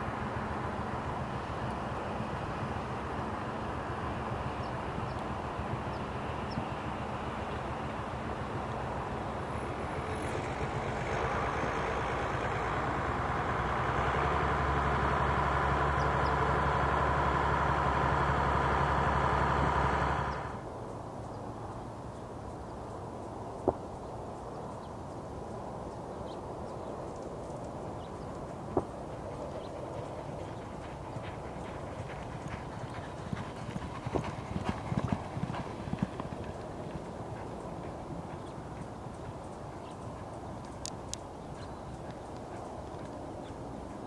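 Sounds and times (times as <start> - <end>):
vehicle engine running: 0.0 - 20.7, 28.1 - 44.0.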